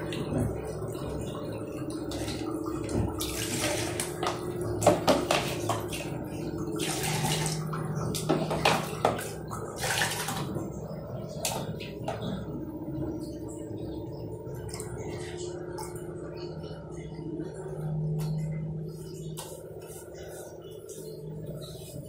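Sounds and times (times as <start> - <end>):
water splashing and pouring: 0.0 - 13.8
faint steady hum: 0.0 - 22.0.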